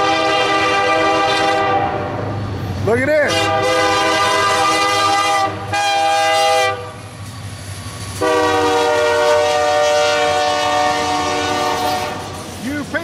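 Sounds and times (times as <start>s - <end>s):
locomotive air horn blasts: 0.0s - 2.1s, 3.3s - 7.0s, 8.2s - 12.4s
train low rumble: 0.0s - 13.0s.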